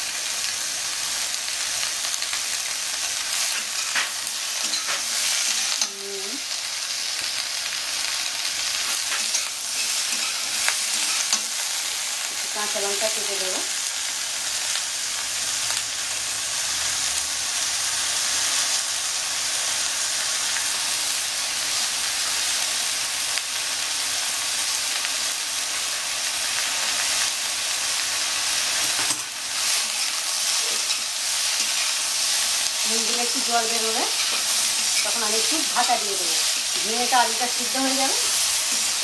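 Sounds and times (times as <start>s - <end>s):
vegetables sizzling in hot oil: 0.0s - 39.0s
metal spatula scraping pan: 8.8s - 11.5s.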